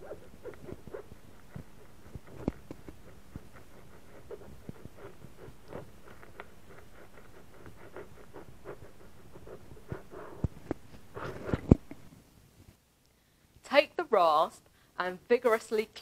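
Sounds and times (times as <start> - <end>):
metal probe scratching rubber tyre: 0.0 - 11.7.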